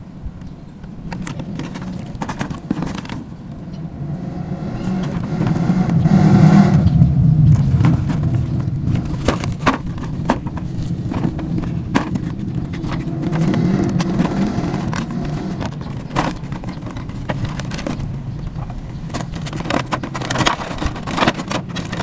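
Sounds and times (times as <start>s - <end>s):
vehicle engine rumble: 0.0s - 22.0s
hands tapping cardboard box: 7.6s - 18.1s, 19.0s - 22.0s.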